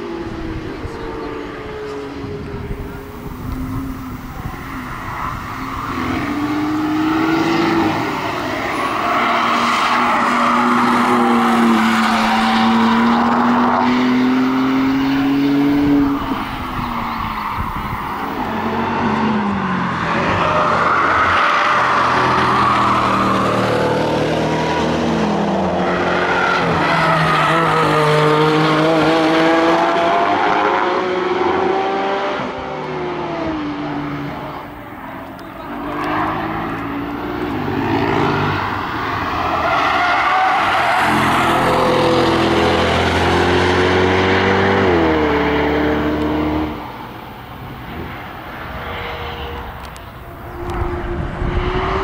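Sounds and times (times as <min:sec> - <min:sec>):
cars passing at speed: 0:00.0 - 0:52.0.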